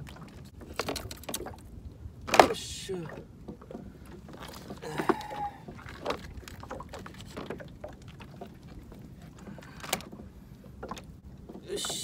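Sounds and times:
fishing tackle clicks and knocks: 0.6s - 1.6s, 2.2s - 2.6s, 3.5s - 11.6s.

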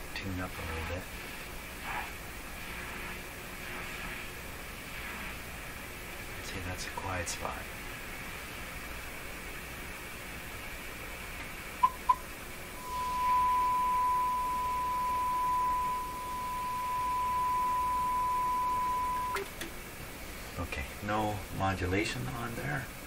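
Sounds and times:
short beeps: 12.8s - 19.4s
steady high-pitched tone: 12.8s - 19.4s.

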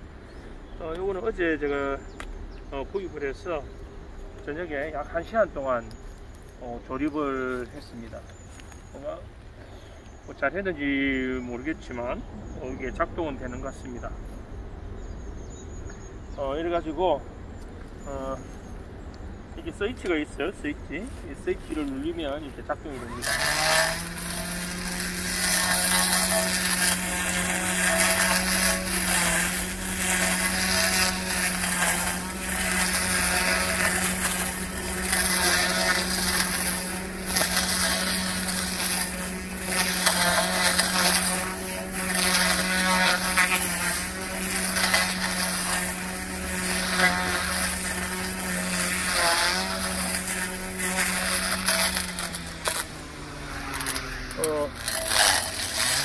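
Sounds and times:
grass trimmer motor whining: 19.5s - 56.0s
trimmer swishing through weeds: 19.6s - 56.0s.

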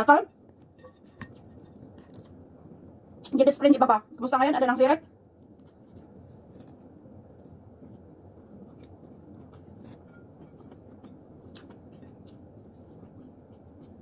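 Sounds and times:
low room hum: 0.0s - 14.0s
eating by hand clicks and smacks: 5.4s - 14.0s.

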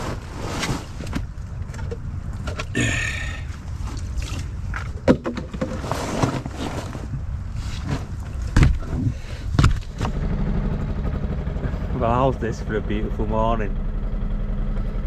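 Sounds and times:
low rumble: 7.0s - 15.0s.

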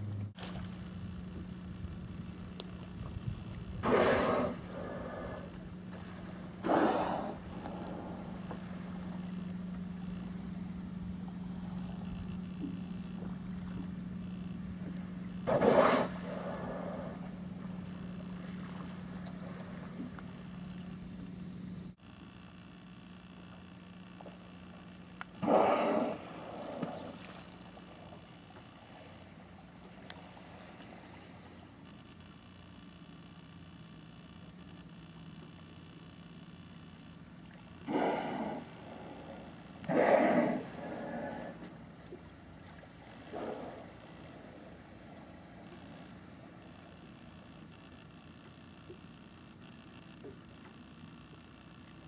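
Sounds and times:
idling boat engine hum: 0.0s - 52.0s
whale blowing: 3.7s - 9.3s, 14.8s - 20.2s, 25.4s - 27.5s, 37.8s - 46.5s
orca blow: 39.8s - 41.6s.

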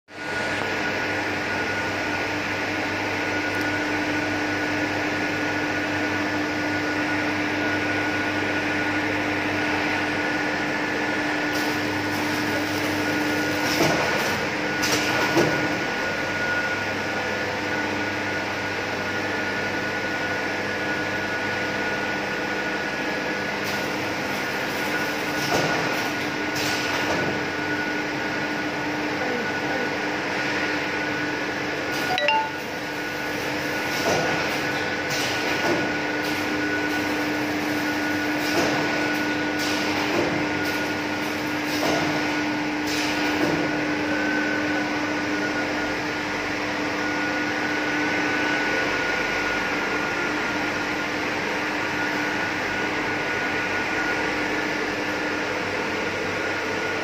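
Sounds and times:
sealing machine humming: 9.0s - 16.8s, 31.9s - 43.4s.

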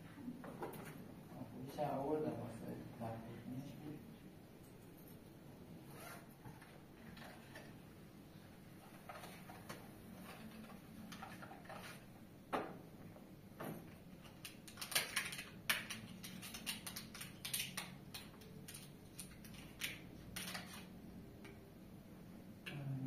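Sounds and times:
small objects clicking and tapping: 14.2s - 20.8s.

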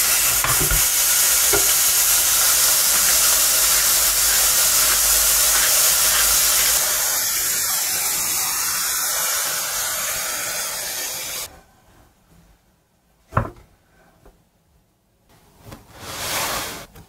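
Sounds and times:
patties sizzling in a frying pan: 0.0s - 11.5s.

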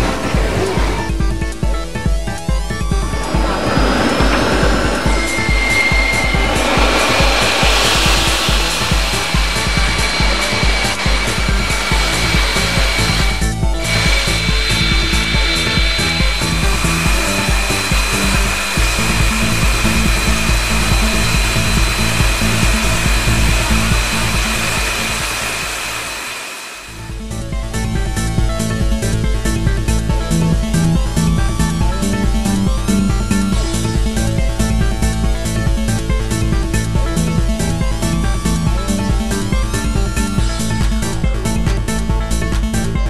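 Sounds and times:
electronic music with driving beat: 2.5s - 25.8s
cutting torch flame hissing: 2.6s - 27.2s.

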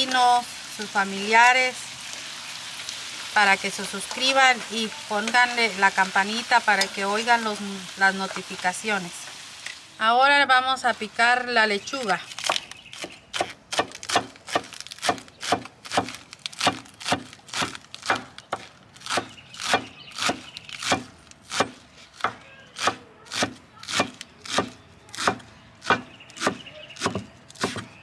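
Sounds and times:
cleaver chopping on wooden board: 12.4s - 28.0s.

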